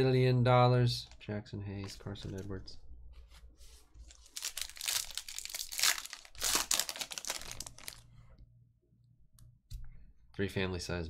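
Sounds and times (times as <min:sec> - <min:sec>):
foil wrapper crinkling and tearing: 0:04.1 - 0:08.0.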